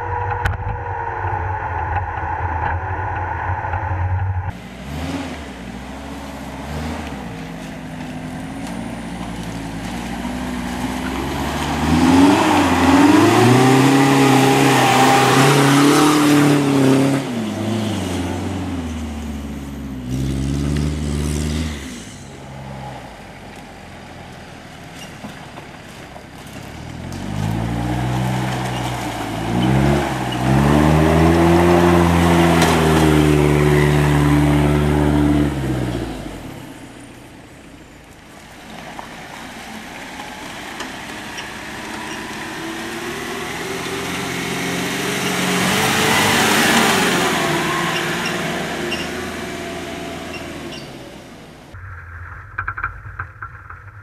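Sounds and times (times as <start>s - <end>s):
off-road engines revving: 3.1s - 51.8s.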